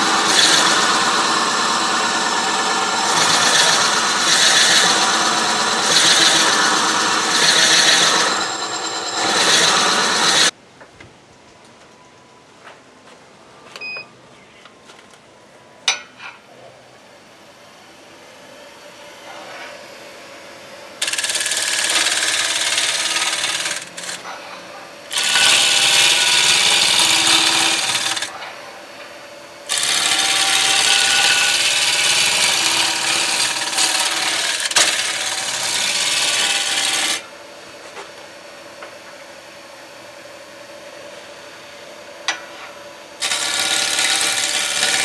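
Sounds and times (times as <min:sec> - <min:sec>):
gouge cutting wood: 0:00.0 - 0:10.5, 0:21.0 - 0:24.3, 0:25.1 - 0:28.3, 0:29.7 - 0:37.2, 0:43.2 - 0:45.0
wood lathe spinning: 0:00.0 - 0:10.5, 0:21.0 - 0:24.3, 0:25.1 - 0:28.3, 0:29.7 - 0:37.2, 0:43.2 - 0:45.0.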